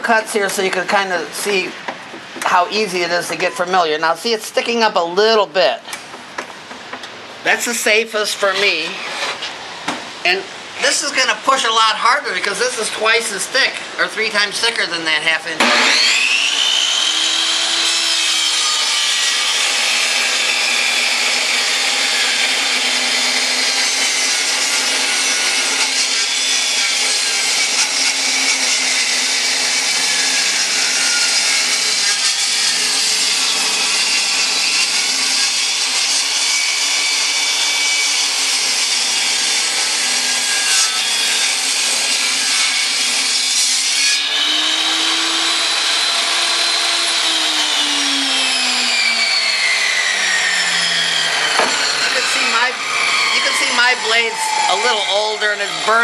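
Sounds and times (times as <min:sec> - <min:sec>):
table saw cutting wood: 0:00.0 - 0:01.8, 0:07.5 - 0:56.0
saw motor hum: 0:15.6 - 0:43.6, 0:44.2 - 0:56.0.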